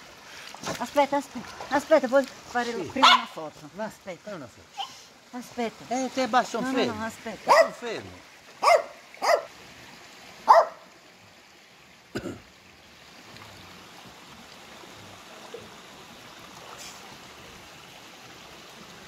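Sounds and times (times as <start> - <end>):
stream running into pool: 0.0 - 19.0
dog barking: 3.0 - 3.4, 7.5 - 7.8, 8.6 - 9.5, 10.5 - 10.9.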